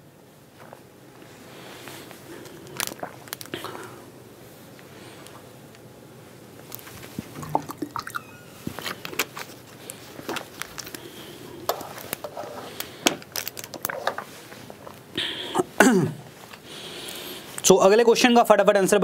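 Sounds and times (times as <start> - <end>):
plastic bottle crinkling: 2.5 - 3.6, 6.6 - 15.0.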